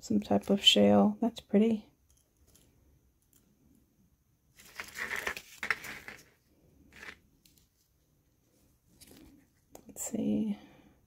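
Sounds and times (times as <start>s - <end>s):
jewelry rustling while handled: 2.0s - 3.5s, 4.5s - 9.7s.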